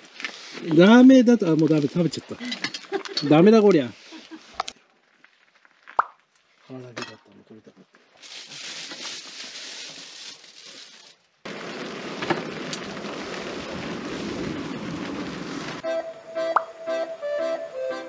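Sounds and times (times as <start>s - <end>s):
charcoal crackling and hissing: 0.0s - 6.8s, 7.6s - 15.8s
steady hiss: 11.5s - 15.8s
music: 15.8s - 18.0s.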